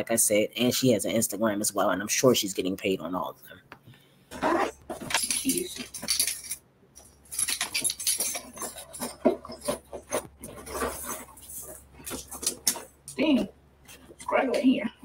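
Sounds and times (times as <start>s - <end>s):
items packed into bag rustling: 4.3s - 13.1s
metal chain clinking: 4.8s - 13.2s.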